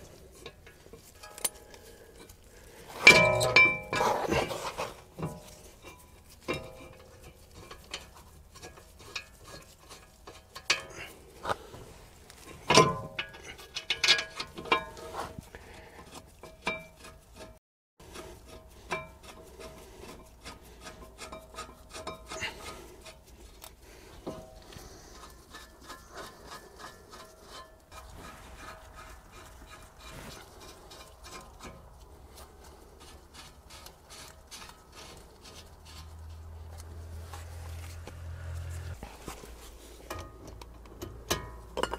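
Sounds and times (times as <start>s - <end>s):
metal scraping: 0.0s - 41.9s
metal clinks and taps: 0.4s - 2.3s, 40.1s - 41.9s.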